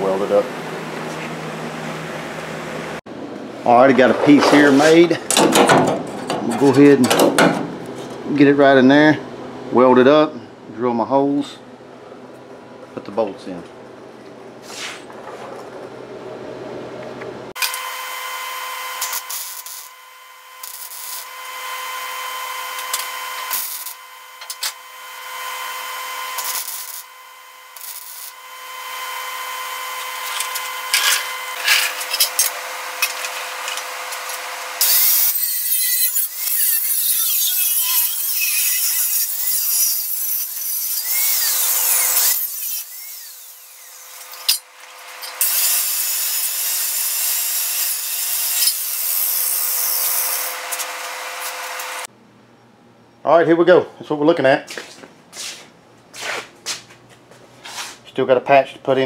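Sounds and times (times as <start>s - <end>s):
angle grinder grinding steel: 17.6s - 52.1s.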